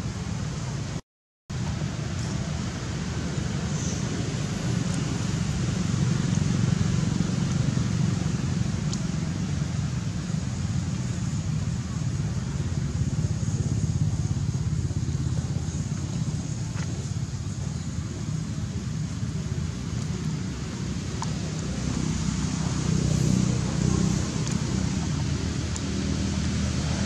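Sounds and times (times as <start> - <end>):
low rumbling noise: 0.0 - 27.0.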